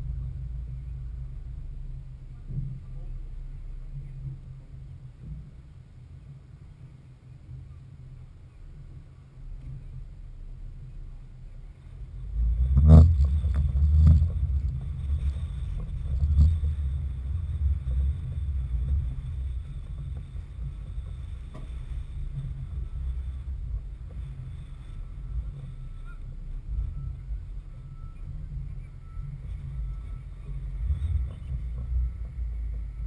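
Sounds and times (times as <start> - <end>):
wind buffeting microphone: 11.6 - 33.0.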